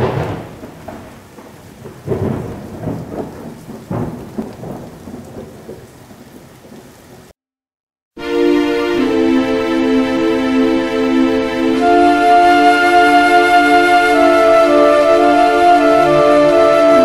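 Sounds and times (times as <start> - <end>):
rolling thunder: 0.0 - 6.9
steady rain: 0.0 - 7.4, 8.2 - 17.0.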